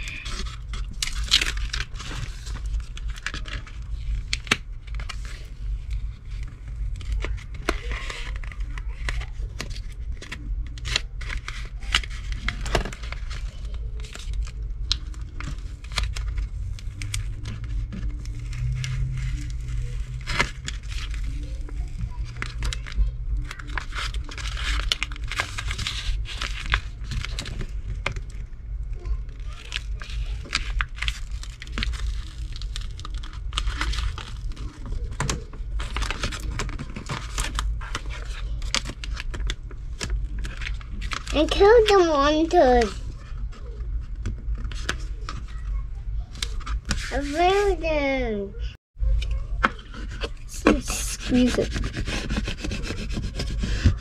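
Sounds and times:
paper crinkling and peeling: 0:00.0 - 0:48.0, 0:49.3 - 0:54.0
steady low hum: 0:00.0 - 0:54.0
hands rubbing a sheet: 0:50.5 - 0:54.0.

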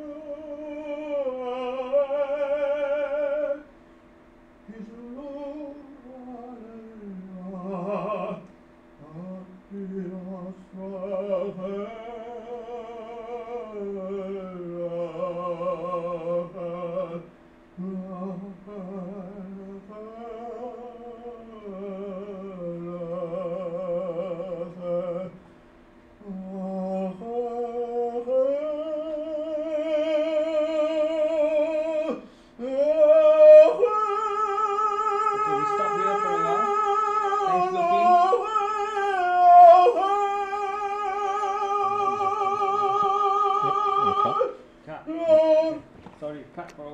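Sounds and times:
man singing operatically: 0:00.0 - 0:03.6, 0:04.7 - 0:08.4, 0:09.0 - 0:17.2, 0:26.2 - 0:45.9.

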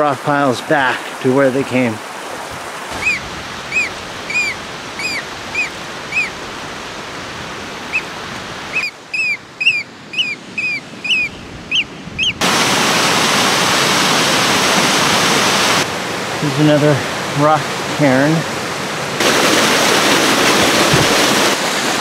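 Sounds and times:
running water: 0:00.0 - 0:22.0
waterfall rushing: 0:00.0 - 0:22.0
bird piping calls: 0:02.9 - 0:06.5, 0:07.8 - 0:12.4.

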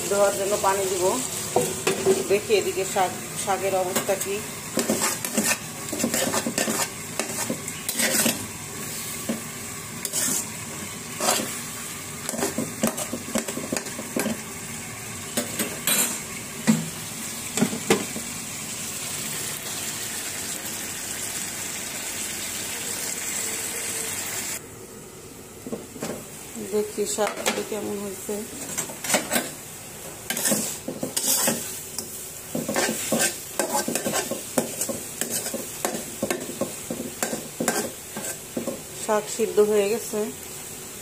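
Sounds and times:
steady sizzle: 0:00.0 - 0:41.0
metal spatula scraping pan: 0:03.9 - 0:09.4, 0:10.0 - 0:11.6, 0:15.4 - 0:16.3, 0:28.5 - 0:29.6, 0:30.3 - 0:38.6.

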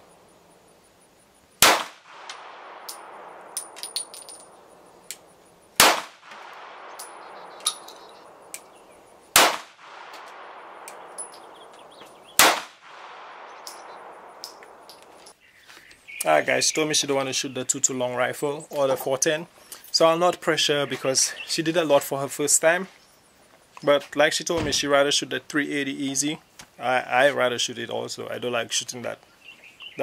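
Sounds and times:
steady background hiss: 0:00.0 - 0:30.0
pistol shots with echo: 0:01.6 - 0:04.8, 0:05.8 - 0:08.6, 0:09.3 - 0:15.2.

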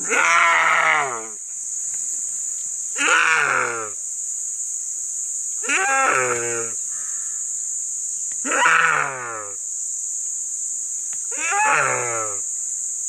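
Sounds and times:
deer stag bleating in distress: 0:00.0 - 0:01.3, 0:03.0 - 0:03.9, 0:11.4 - 0:12.4.

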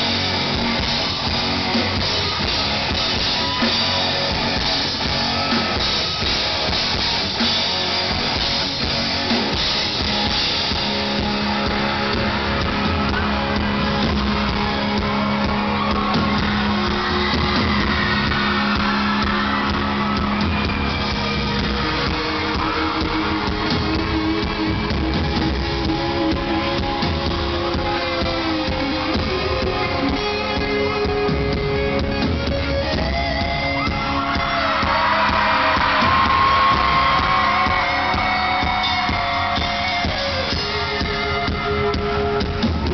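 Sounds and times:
drum kit: 0:00.0 - 0:42.9
electric guitar: 0:00.0 - 0:42.9
live rock band playing: 0:00.0 - 0:42.9.

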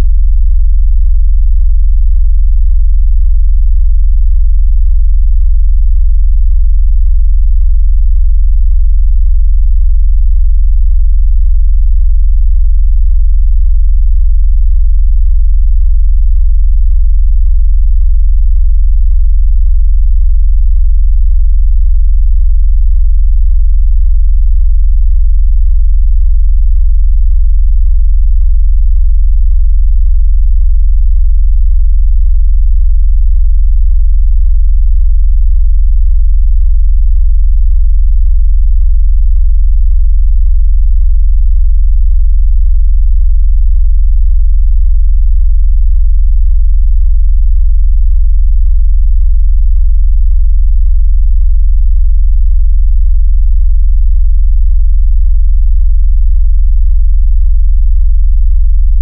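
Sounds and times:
deep synthesized sine tone: 0:00.0 - 0:41.6.

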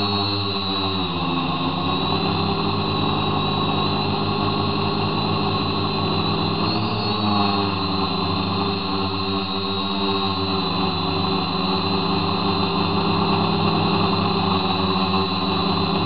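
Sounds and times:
model aircraft motor humming: 0:00.0 - 0:16.0.

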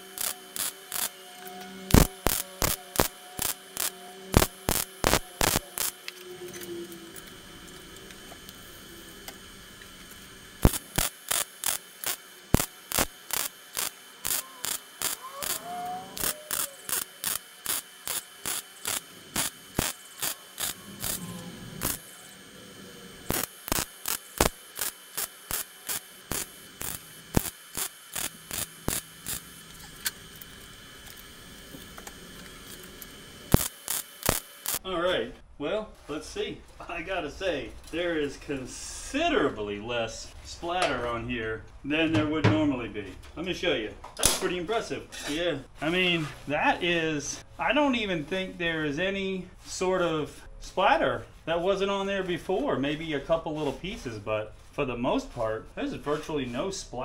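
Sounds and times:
welding arc crackling: 0:00.0 - 0:34.8.

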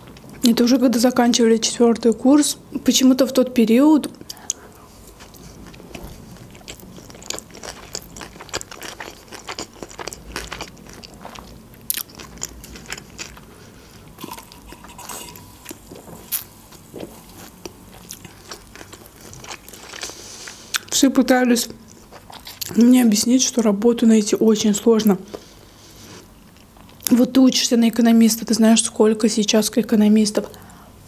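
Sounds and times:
wet chewing clicks and crunches: 0:04.3 - 0:14.9, 0:15.6 - 0:21.0.

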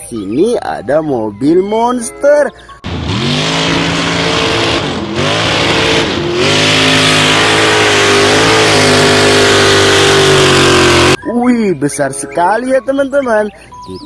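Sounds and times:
truck engine revving hard: 0:02.8 - 0:11.2.

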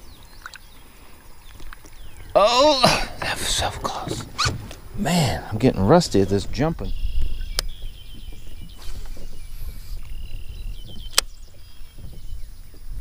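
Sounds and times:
wind rumble on microphone: 0:03.1 - 0:13.0.

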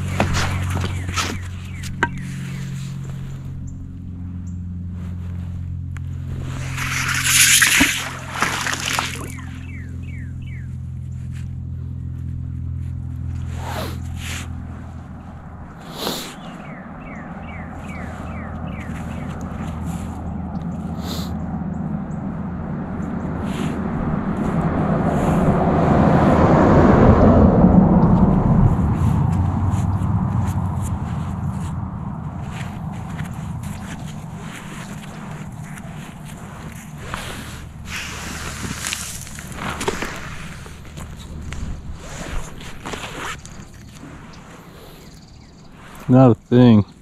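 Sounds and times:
steady low hum: 0:00.0 - 0:47.0
magnet splashing into water: 0:06.5 - 0:09.6.

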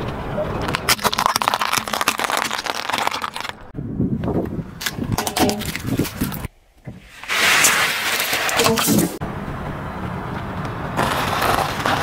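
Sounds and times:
pasta cracking under tyre: 0:00.6 - 0:03.7, 0:11.0 - 0:12.0.

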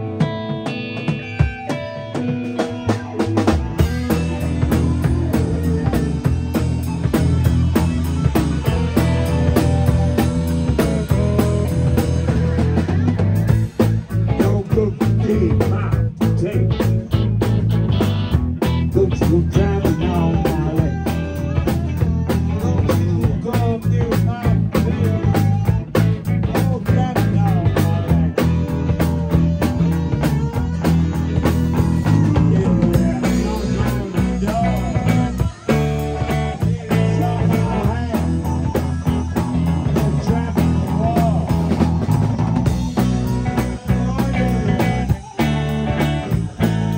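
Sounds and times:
live rock band playing: 0:00.0 - 0:46.9
man singing into a microphone: 0:10.7 - 0:12.9, 0:14.2 - 0:16.9, 0:18.9 - 0:46.9.

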